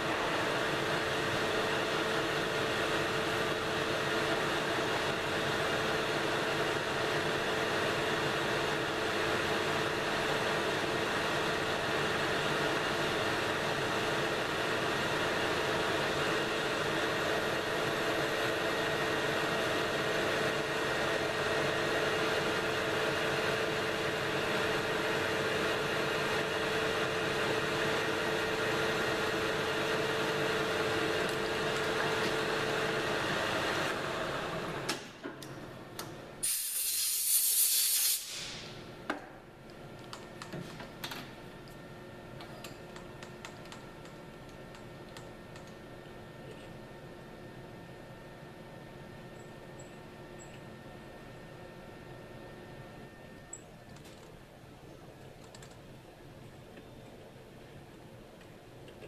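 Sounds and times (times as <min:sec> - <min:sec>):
lathe motor whine: 0:08.2 - 0:34.9
loud hiss: 0:36.4 - 0:38.8.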